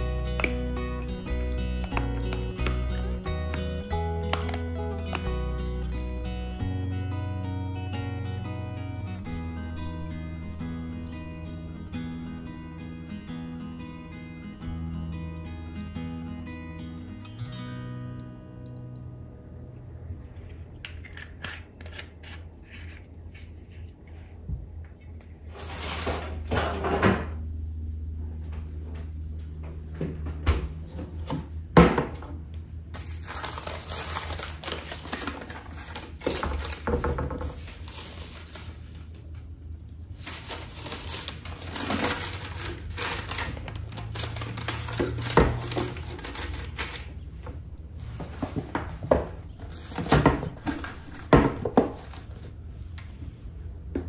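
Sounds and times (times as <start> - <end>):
newspaper rustling and crinkling: 33.0 - 39.1, 40.2 - 47.2.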